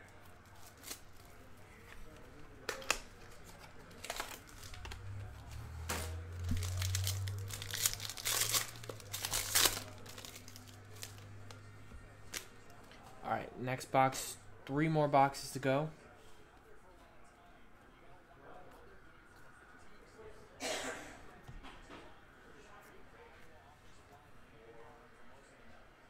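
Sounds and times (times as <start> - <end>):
foil pack crinkling and tearing: 0.4 - 1.4, 2.7 - 5.1, 6.4 - 11.6.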